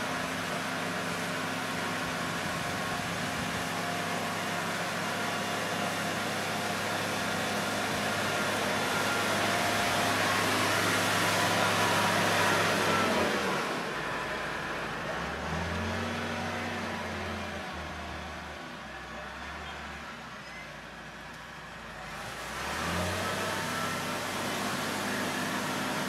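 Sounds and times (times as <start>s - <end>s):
tiller churning water and mud: 0.0s - 14.2s, 22.1s - 26.0s
tractor engine under load: 0.0s - 26.0s.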